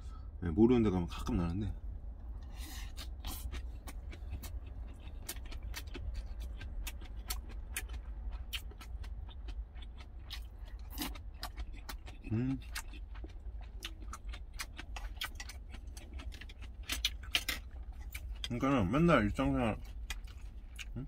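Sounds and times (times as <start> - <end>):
steady low hum: 0.0 - 21.0
chewing with crisp crunches: 2.2 - 21.0.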